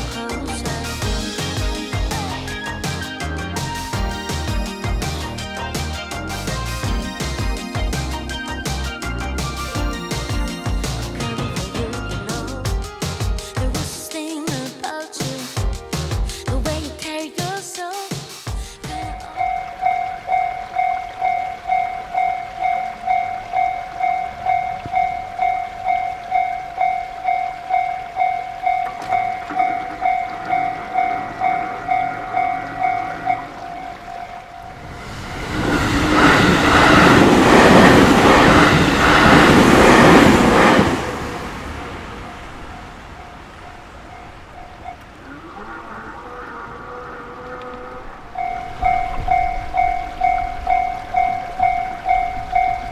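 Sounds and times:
wheels clacking over rail joints: 0:18.9 - 0:34.6, 0:35.2 - 0:42.2
train passing: 0:18.9 - 0:45.4, 0:47.8 - 0:52.9.

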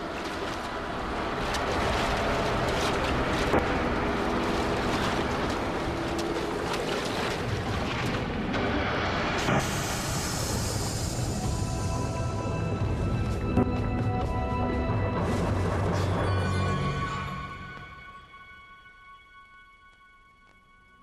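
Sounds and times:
rough sea noise: 0:00.0 - 0:13.5.

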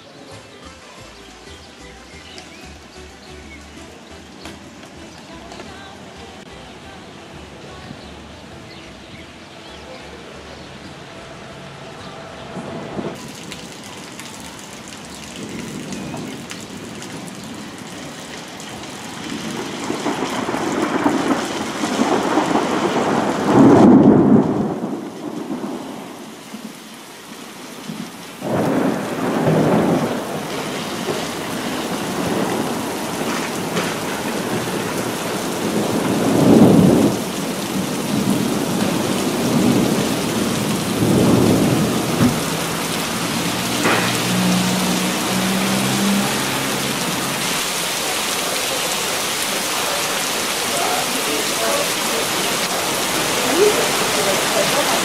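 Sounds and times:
rain falling: 0:00.0 - 0:55.0
rolling thunder: 0:12.5 - 0:13.3, 0:15.4 - 0:26.8, 0:27.9 - 0:47.4.

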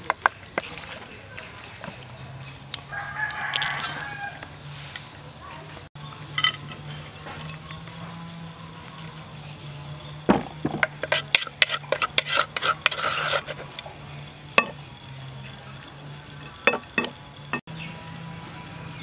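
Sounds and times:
wooden spoon knocking in clay mortar: 0:16.5 - 0:17.2.

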